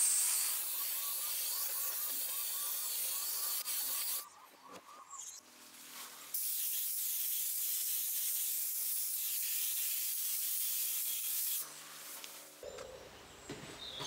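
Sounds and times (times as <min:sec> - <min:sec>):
spray gun hissing: 0:06.3 - 0:12.2.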